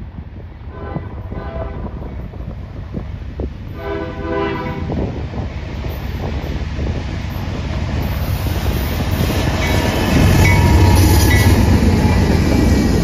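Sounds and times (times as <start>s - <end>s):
freight train rumbling: 0.0s - 13.0s
locomotive air horn blasts: 0.7s - 1.9s, 3.8s - 5.0s.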